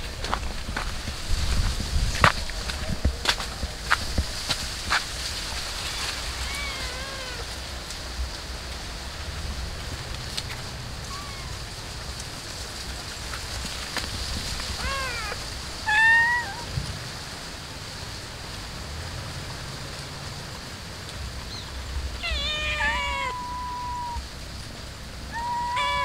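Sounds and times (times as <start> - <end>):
cats meowing: 5.8 - 7.6, 11.0 - 12.0, 14.7 - 16.7, 22.2 - 24.3, 25.2 - 26.0.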